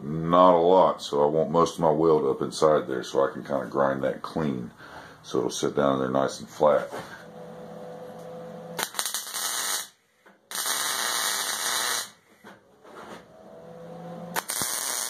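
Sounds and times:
steady hum: 3.5s - 9.4s
welder arc crackling: 7.3s - 12.2s, 14.3s - 15.0s.

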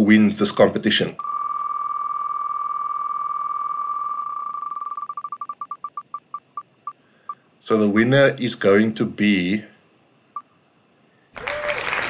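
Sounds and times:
electronic spinning wheel ticks: 1.2s - 6.6s.

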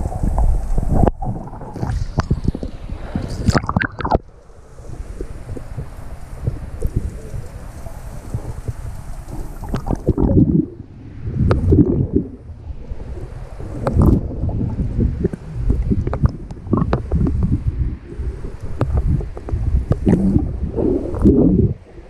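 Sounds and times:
bubbles crackling: 0.0s - 4.3s, 5.2s - 10.8s, 11.4s - 12.4s, 13.7s - 17.5s, 18.1s - 21.9s
muffled underwater water rush: 0.0s - 22.0s
low rumble: 8.2s - 22.0s.

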